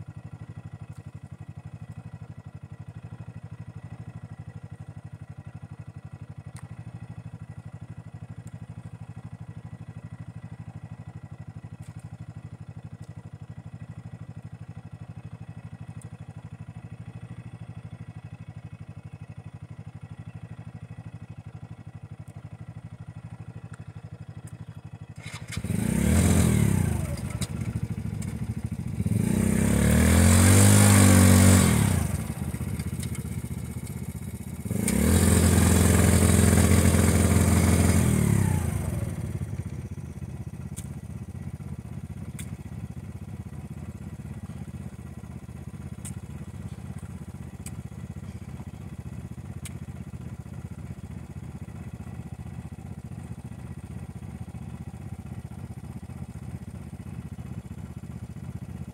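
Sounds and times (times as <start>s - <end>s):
engine idling: 0.0s - 58.9s
small engine revving: 25.2s - 40.9s.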